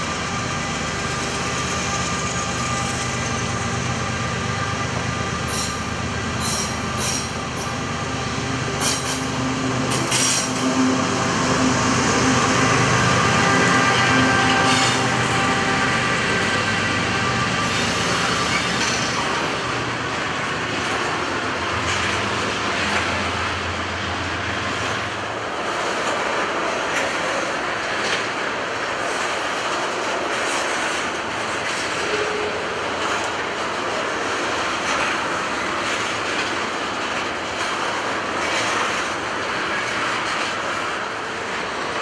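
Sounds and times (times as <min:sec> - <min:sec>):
locomotive engine: 0:00.0 - 0:26.6
train wheels clacking on rails: 0:00.0 - 0:42.0.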